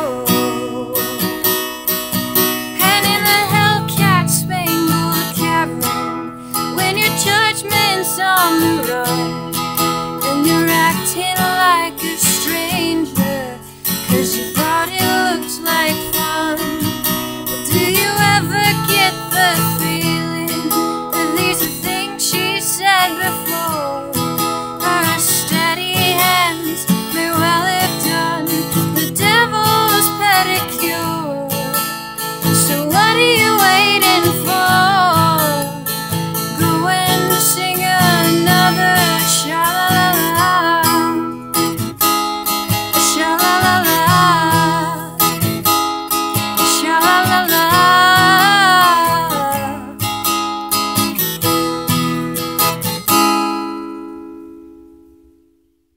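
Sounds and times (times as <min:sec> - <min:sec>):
woman singing: 0:00.0 - 0:01.7, 0:02.3 - 0:41.9, 0:42.7 - 0:50.2
acoustic guitar chords: 0:00.0 - 0:55.9.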